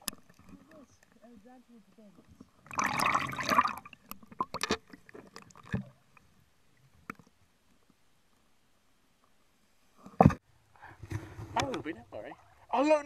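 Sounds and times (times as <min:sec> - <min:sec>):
water splashing against camera: 0:02.1 - 0:06.3.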